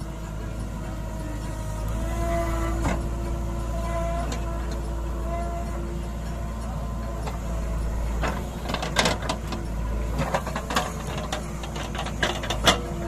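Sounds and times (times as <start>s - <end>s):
diesel engine running: 0.0s - 13.0s
backhoe arm knocks and clatters: 10.2s - 13.0s.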